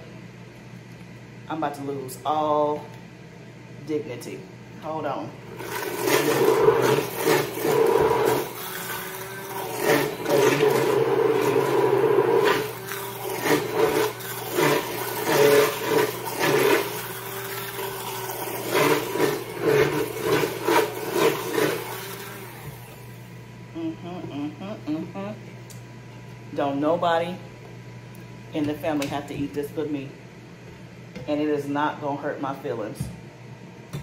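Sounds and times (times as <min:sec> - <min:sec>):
immersion blender whirring: 0:05.4 - 0:23.7.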